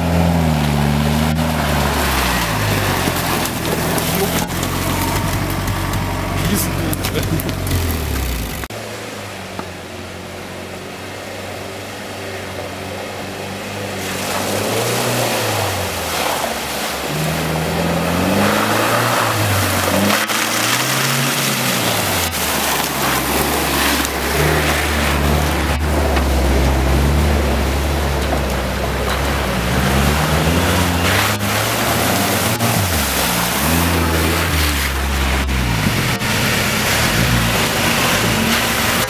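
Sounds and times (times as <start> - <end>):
water sloshing and splashing: 0.0 - 8.7, 13.8 - 39.0
off-road engines revving: 0.0 - 39.0.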